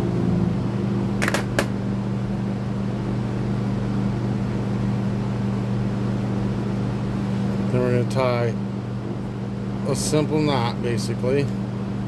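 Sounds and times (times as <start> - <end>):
electric fans humming: 0.0 - 12.0.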